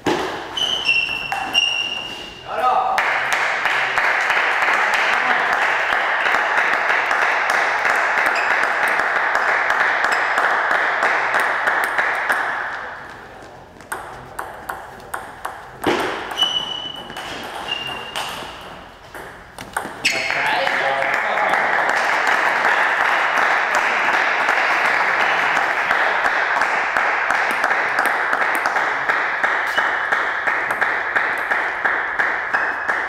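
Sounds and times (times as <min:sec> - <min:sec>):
table tennis ball bouncing: 0:00.0 - 0:02.1, 0:06.3 - 0:13.2, 0:13.8 - 0:20.8, 0:23.7 - 0:33.0
spectators clapping and cheering: 0:02.9 - 0:13.0, 0:20.1 - 0:33.0.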